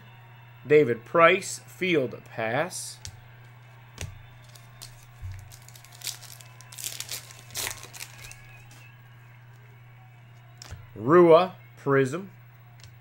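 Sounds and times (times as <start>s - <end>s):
foil pack crinkling and tearing: 4.4s - 8.9s.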